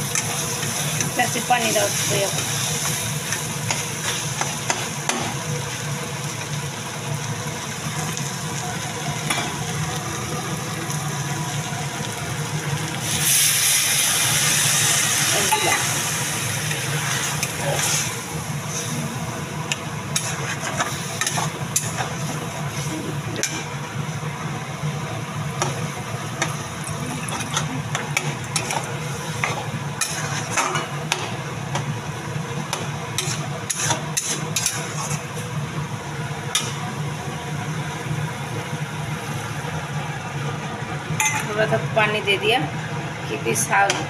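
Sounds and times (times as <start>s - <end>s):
food sizzling and bubbling: 0.0s - 44.0s
metal spatula scraping pan: 33.2s - 35.2s.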